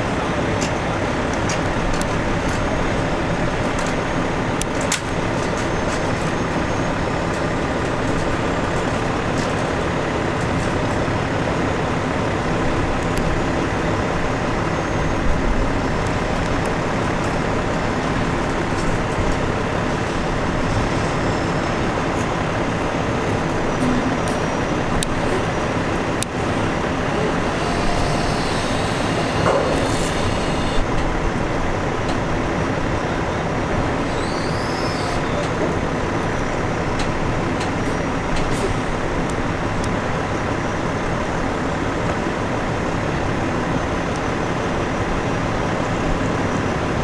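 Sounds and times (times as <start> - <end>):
diesel truck engines idling: 0.0 - 47.0.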